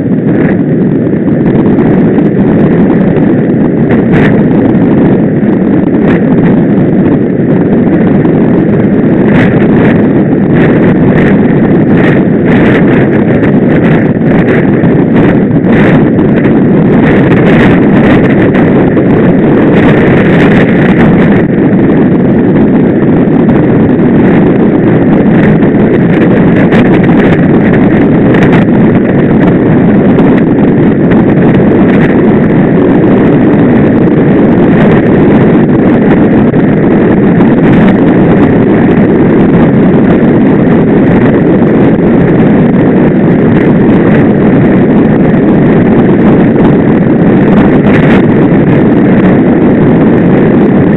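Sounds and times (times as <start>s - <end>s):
bicycle tyre and road noise: 0.0s - 50.9s
wind buffeting microphone: 0.0s - 50.9s.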